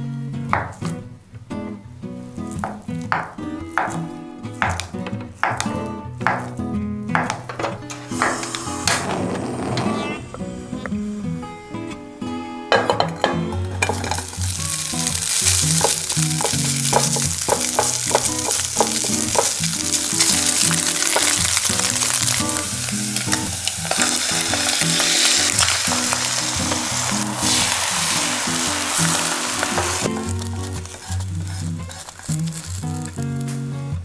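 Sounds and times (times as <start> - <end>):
background music: 0.0 - 34.0
food sizzling in hot oil: 8.0 - 9.2, 13.8 - 33.6
spatula stirring in pan: 13.8 - 33.1.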